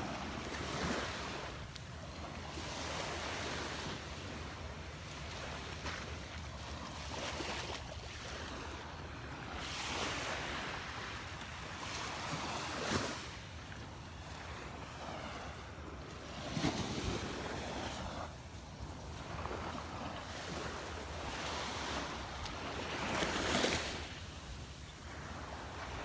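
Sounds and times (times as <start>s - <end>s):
small waves lapping on beach: 0.0s - 26.0s.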